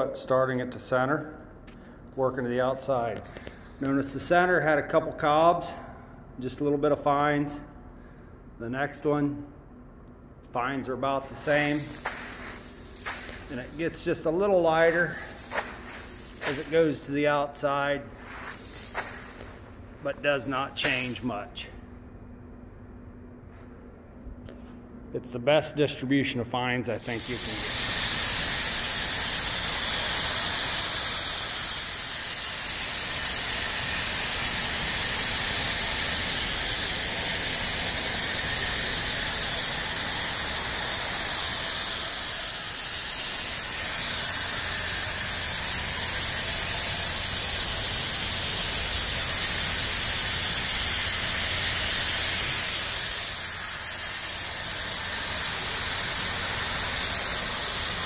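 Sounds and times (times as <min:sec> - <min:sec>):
grain streaming onto pile: 0:11.5 - 0:14.0, 0:14.9 - 0:17.0, 0:18.2 - 0:19.7.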